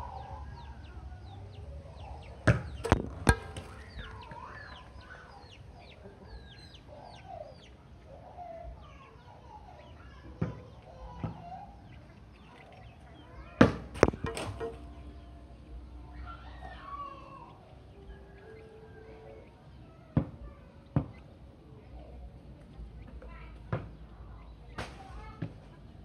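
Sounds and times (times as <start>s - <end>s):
chickens clucking and chirping: 0.0s - 26.0s
volleyball struck by hand: 2.4s - 4.0s, 13.6s - 14.8s.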